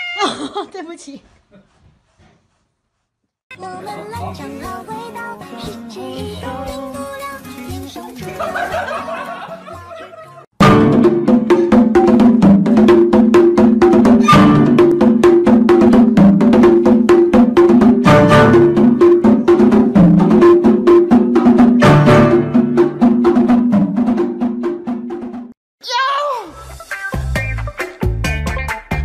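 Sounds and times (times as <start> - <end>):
upbeat music with click beat: 26.9 - 29.0.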